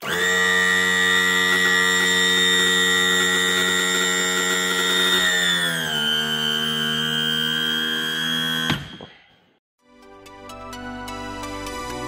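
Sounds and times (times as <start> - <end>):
electric trim motor whining: 0.0 - 9.0.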